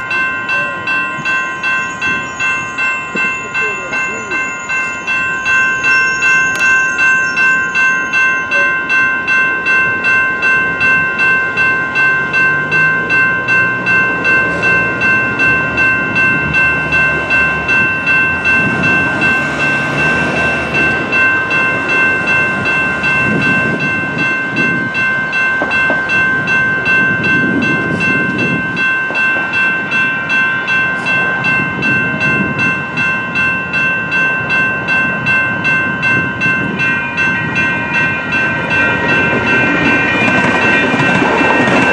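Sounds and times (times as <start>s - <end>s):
railroad crossing bells ringing: 0.0s - 41.9s
rushing noise: 14.6s - 23.9s.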